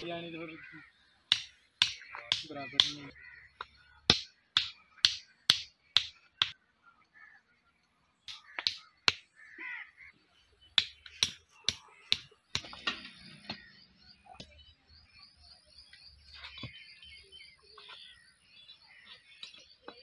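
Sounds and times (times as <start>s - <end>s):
hammer knocking stakes into dirt: 1.3s - 6.6s, 8.3s - 9.4s, 10.8s - 13.6s.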